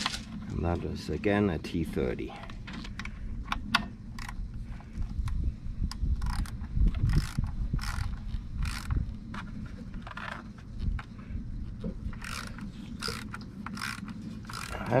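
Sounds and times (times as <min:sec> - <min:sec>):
ratcheting screwdriver clicking: 0:05.9 - 0:09.5, 0:12.2 - 0:15.0.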